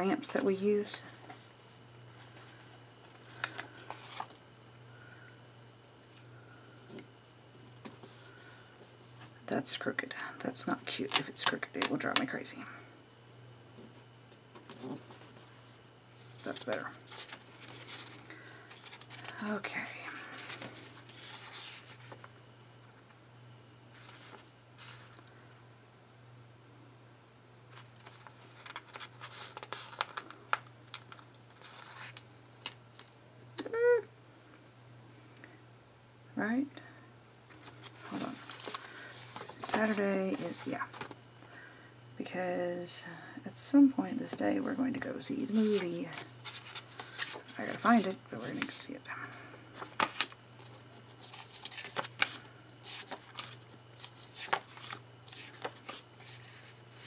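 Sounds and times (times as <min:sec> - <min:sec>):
paper crinkling and rustling: 0:02.2 - 0:04.4, 0:14.6 - 0:22.3, 0:24.0 - 0:25.2, 0:27.7 - 0:33.2, 0:37.5 - 0:41.2, 0:45.4 - 0:48.8, 0:49.4 - 0:57.0.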